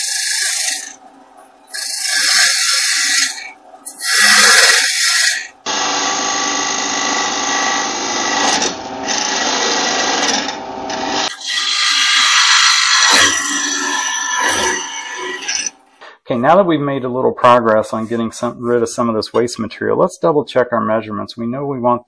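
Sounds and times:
gouge cutting wood on a lathe: 0.0 - 1.0, 1.7 - 15.7.

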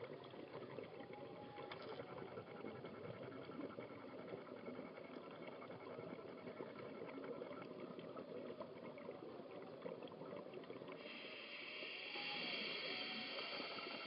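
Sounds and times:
underwater crackling bubbling hiss: 0.0 - 14.0.

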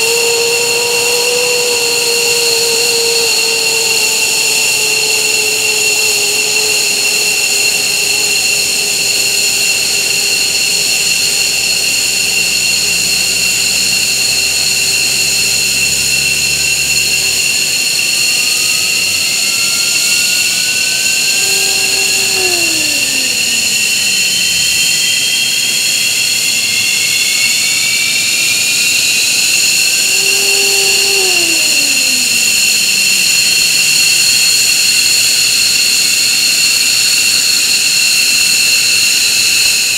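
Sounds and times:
low tone sliding down: 20.7 - 24.0, 30.1 - 32.7.

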